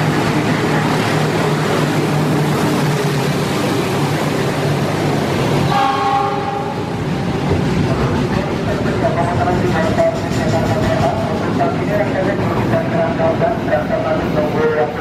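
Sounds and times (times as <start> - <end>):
locomotive engine hum: 0.0 - 15.0
train wagons rumbling and clattering: 0.0 - 15.0
train horn: 5.7 - 6.9.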